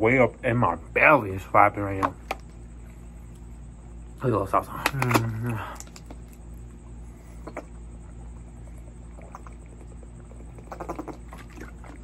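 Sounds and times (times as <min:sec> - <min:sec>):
steady low hum: 0:00.0 - 0:12.0
swallowing sounds and clicks: 0:04.8 - 0:06.5.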